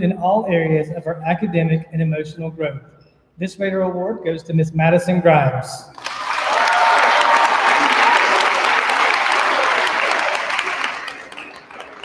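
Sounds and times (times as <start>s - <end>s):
small group applauding: 6.0s - 12.0s.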